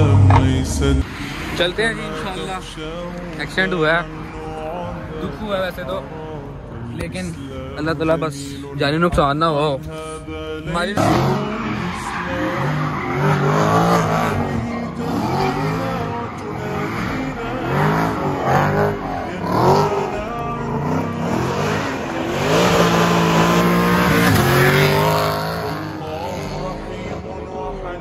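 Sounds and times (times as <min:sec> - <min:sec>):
car engine revving: 0:00.0 - 0:08.2, 0:10.6 - 0:27.2
tyre squeal: 0:11.0 - 0:18.8.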